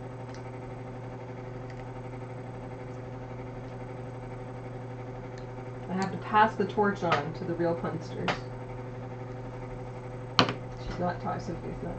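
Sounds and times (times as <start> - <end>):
low room hum: 0.0 - 11.9.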